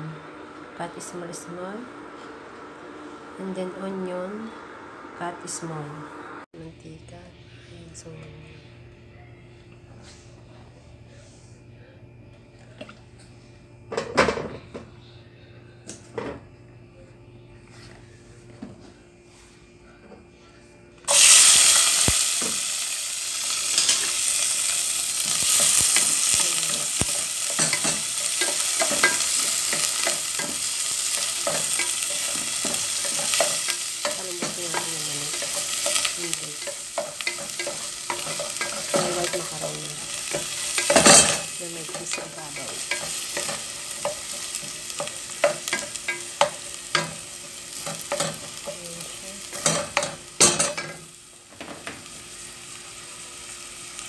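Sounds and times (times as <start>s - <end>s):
onion sizzling in hot oil: 21.1s - 54.0s.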